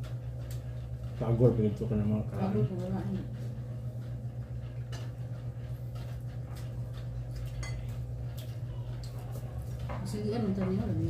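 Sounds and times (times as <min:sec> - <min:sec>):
steady low hum: 0:00.0 - 0:11.0
plates and tableware clinking: 0:07.4 - 0:08.0.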